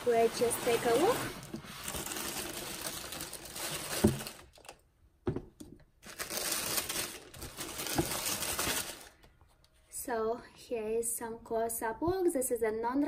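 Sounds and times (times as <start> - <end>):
tissue paper crinkling: 0.0 - 4.8, 6.0 - 9.3.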